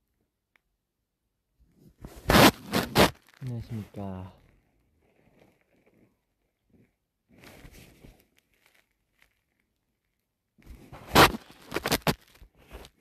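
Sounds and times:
phone rustling against fabric: 1.7s - 9.7s, 10.6s - 13.0s
loud scrape: 2.0s - 3.2s, 10.9s - 12.2s.

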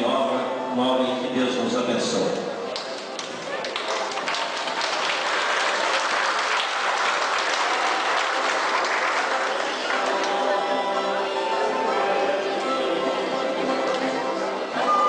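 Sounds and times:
music: 0.0s - 2.2s, 3.9s - 15.0s
crowd applauding: 2.7s - 12.1s.

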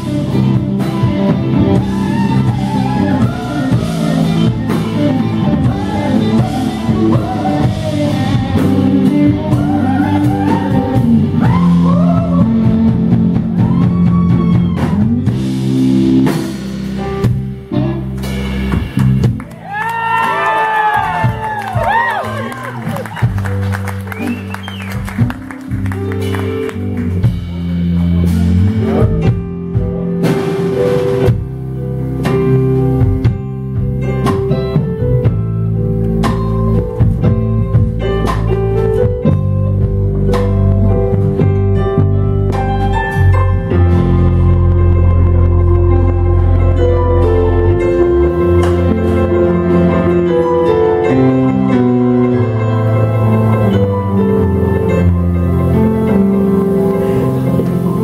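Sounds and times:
drum kit with cymbal crashes: 0.0s - 22.0s, 25.0s - 41.8s
bass guitar: 0.0s - 58.0s
electric guitar: 0.0s - 58.0s
keyboard: 0.0s - 58.0s.

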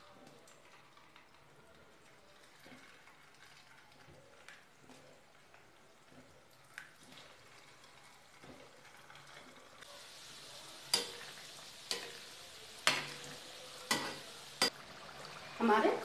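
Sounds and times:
food sizzling in hot oil: 7.1s - 16.0s
metal ladle knocking on pan: 13.9s - 14.8s.

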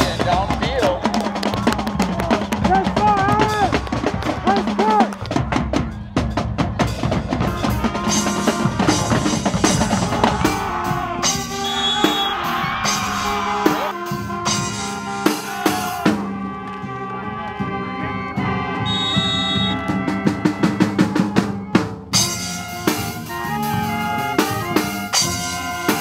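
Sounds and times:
horns playing held chords: 7.4s - 21.4s, 22.1s - 26.0s.

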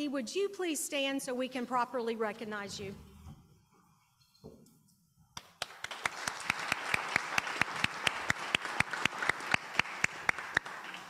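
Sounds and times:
sharp claps close to microphone: 5.3s - 11.0s
audience applauding: 5.4s - 11.0s.

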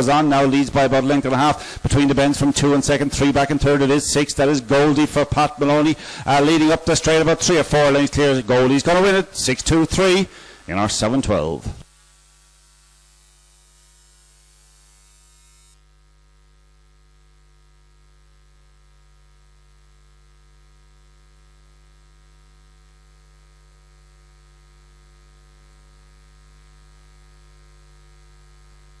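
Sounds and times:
electrical mains hum: 0.0s - 29.0s
faint hiss: 0.2s - 15.8s.

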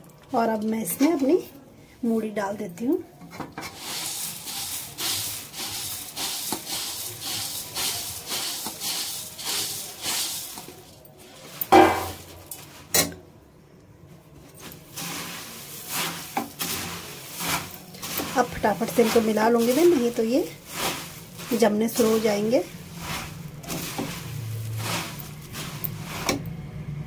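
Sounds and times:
puffed rice pattering into metal pan: 3.5s - 13.1s, 14.5s - 26.5s.

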